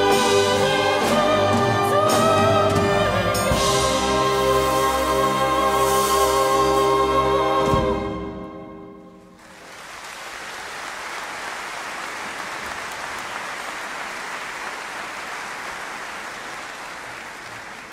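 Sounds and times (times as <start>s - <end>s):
orchestra and choir chord: 0.0s - 9.3s
audience applause: 9.4s - 17.9s.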